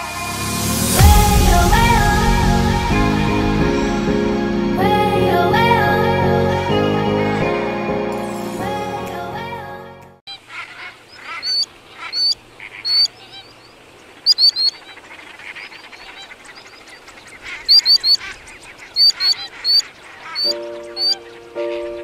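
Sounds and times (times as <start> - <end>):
flamingos honking and gabbling: 10.3 - 22.0
sharp high bird calls: 10.3 - 22.0.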